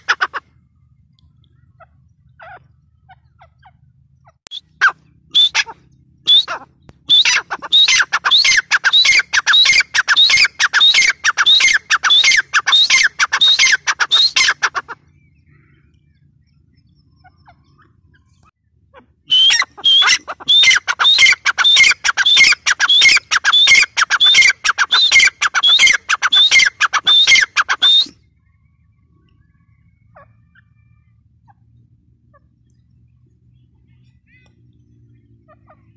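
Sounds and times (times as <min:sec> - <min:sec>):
francolin calling shrill notes: 0:04.5 - 0:14.8, 0:19.3 - 0:28.2.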